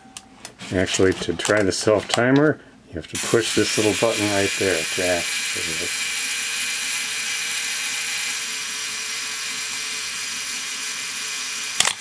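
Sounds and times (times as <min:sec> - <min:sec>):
camera self-timer buzzing: 0:03.2 - 0:12.0.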